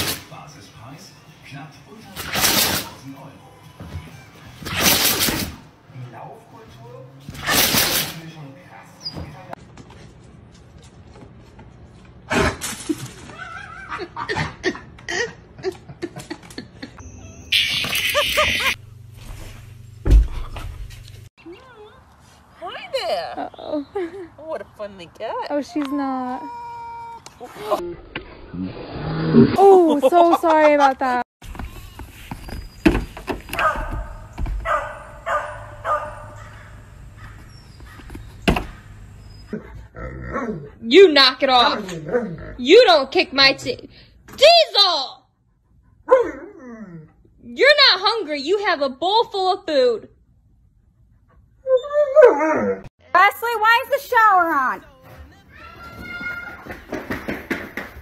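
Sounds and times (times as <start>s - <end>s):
person laughing: 12.9s - 17.0s, 17.7s - 18.8s.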